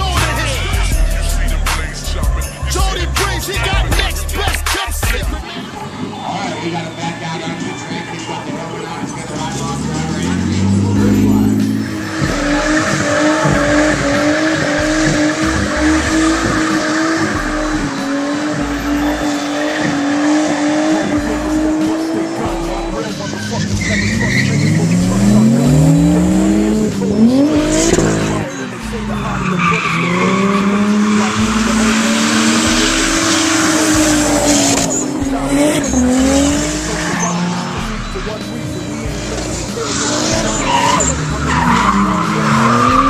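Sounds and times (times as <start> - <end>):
tyres squealing and skidding: 0.0 - 43.0
car engine revving high: 8.4 - 43.0.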